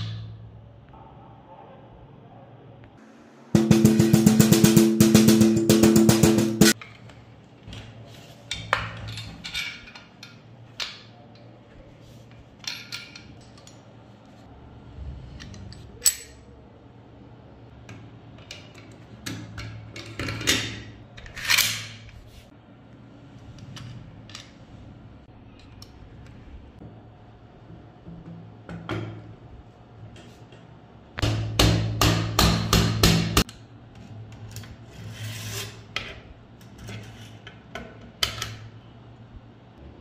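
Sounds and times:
metal parts clicking and clinking: 8.5 - 11.5, 12.4 - 14.0, 15.4 - 16.6
metal parts sliding scrape: 34.5 - 37.5.

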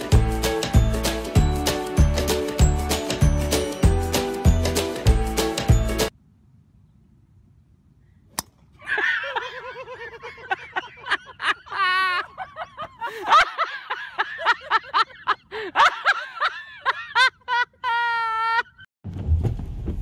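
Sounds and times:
people laughing: 8.9 - 18.8.

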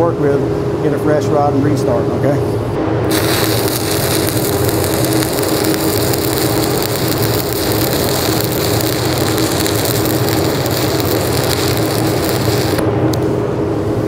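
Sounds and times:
steady low hum: 0.0 - 14.0
welding arc crackling and sizzling: 3.1 - 13.3.

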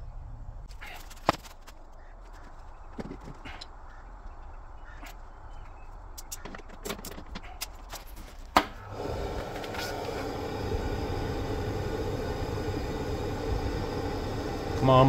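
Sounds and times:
boiler burner motor and fan running: 8.8 - 15.0.

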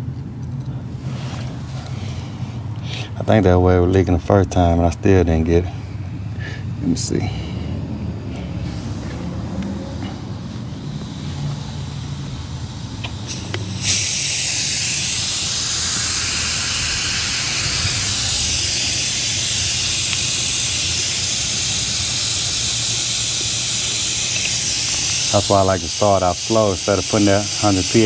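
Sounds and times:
nitrogen hissing from valve: 11.2 - 28.0.

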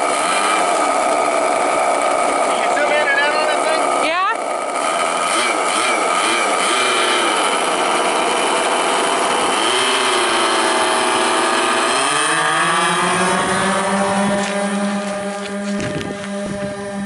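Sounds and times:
model plane engines running: 0.0 - 17.0.

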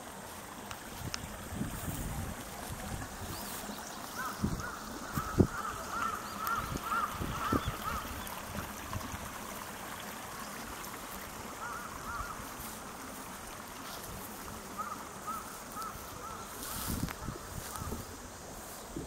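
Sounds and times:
river rushing: 0.0 - 18.6
waterfowl honking: 4.1 - 8.5, 11.4 - 12.6, 14.7 - 18.0.

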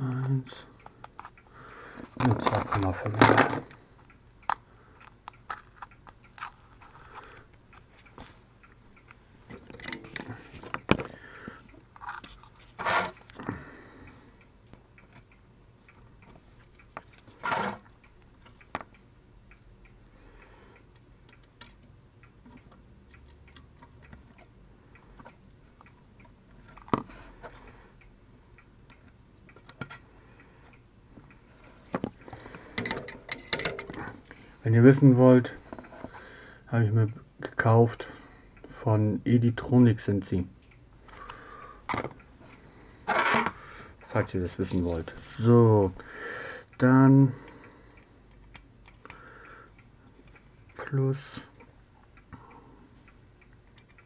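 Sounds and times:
hands handling circuit board: 2.0 - 3.8.

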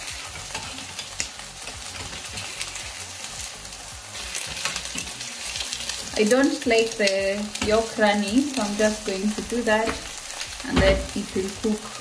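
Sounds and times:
metal spoon scraping a pan: 0.0 - 2.9, 4.1 - 7.9
food sizzling in hot oil: 0.0 - 12.0.

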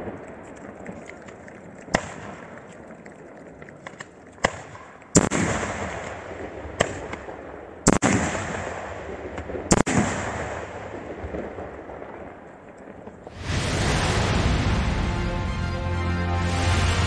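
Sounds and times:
fireworks bangs with echoing rumble: 1.9 - 2.6, 4.4 - 15.6.

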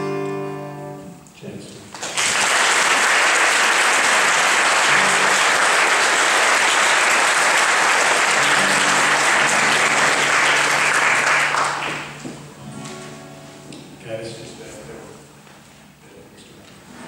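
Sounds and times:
acoustic guitar notes: 0.0 - 1.7, 8.3 - 16.0
audience applauding: 1.9 - 12.4.

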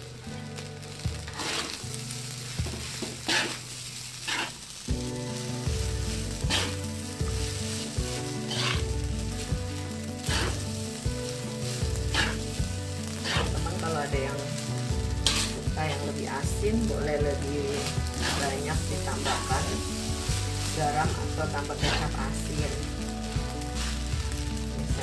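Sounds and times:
rice sizzling in a wok: 0.0 - 25.0
spatula scraping a pan: 1.3 - 1.9, 2.6 - 4.7, 5.4 - 16.0, 17.6 - 22.2.

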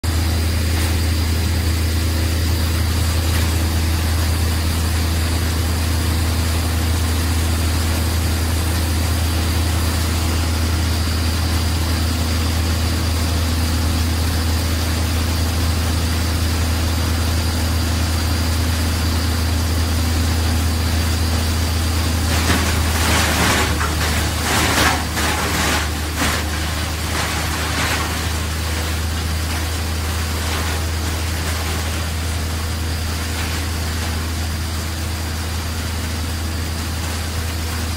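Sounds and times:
heavy machinery engines droning: 0.0 - 37.9.

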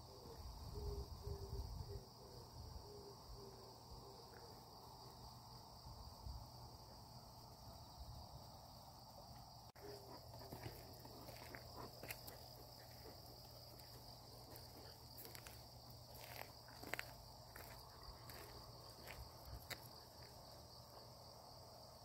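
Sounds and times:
crickets chirring: 0.0 - 22.0
footsteps on dirt path: 9.8 - 20.4.

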